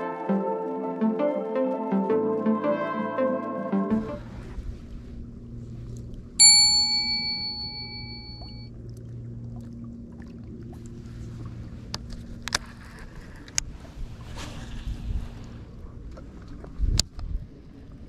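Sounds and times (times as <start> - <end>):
bright bell ding: 6.4 - 8.7.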